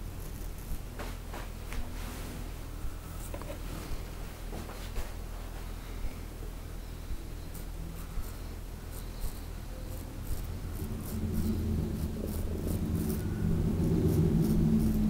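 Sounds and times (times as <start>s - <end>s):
razor scraping beard stubble: 0.0s - 1.6s, 7.4s - 15.0s
low rumble with hum: 0.0s - 15.0s.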